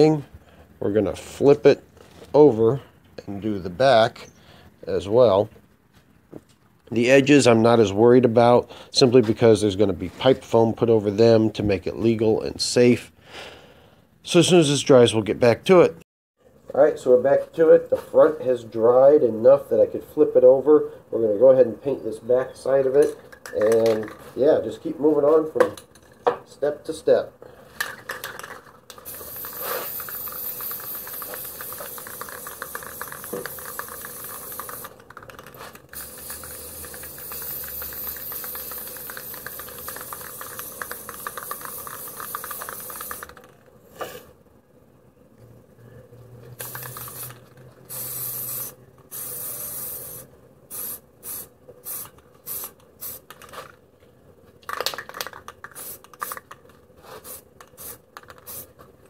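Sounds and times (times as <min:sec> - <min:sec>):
aerosol spray can hissing: 0:29.0 - 0:35.1, 0:35.9 - 0:43.4, 0:46.6 - 0:53.3, 0:55.7 - 0:56.5, 0:57.1 - 0:58.8.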